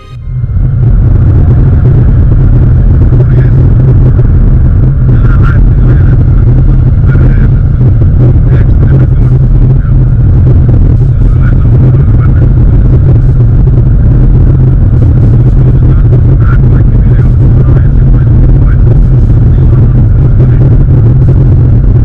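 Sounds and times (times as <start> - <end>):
car engine and road noise: 0.0 - 3.2
faint man's voice: 3.0 - 4.2, 5.0 - 13.1, 14.8 - 21.6.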